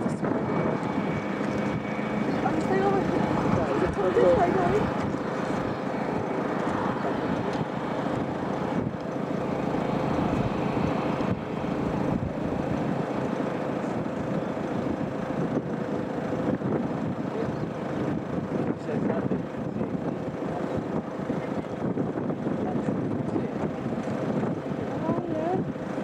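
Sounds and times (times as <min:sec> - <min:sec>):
engine roar with whine: 0:00.0 - 0:26.0
wind on microphone: 0:00.0 - 0:26.0.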